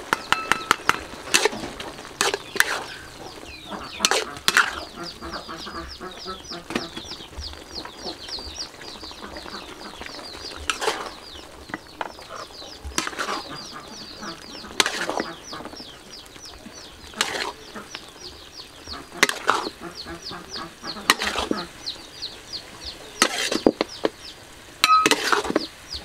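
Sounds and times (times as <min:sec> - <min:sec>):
bird chirping rapidly: 0:00.0 - 0:01.3, 0:02.3 - 0:26.0
metal ladle clanking on wok: 0:00.0 - 0:01.5, 0:24.8 - 0:25.6.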